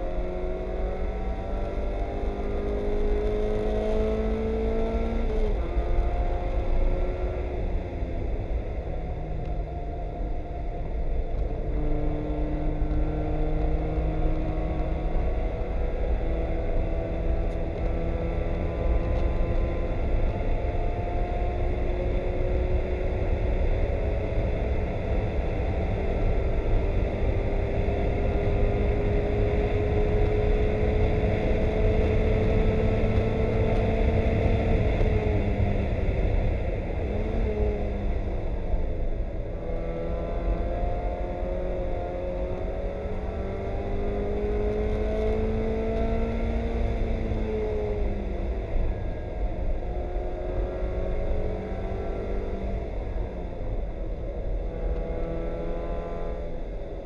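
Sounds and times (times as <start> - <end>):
race car engine from cabin: 0.0 - 57.0.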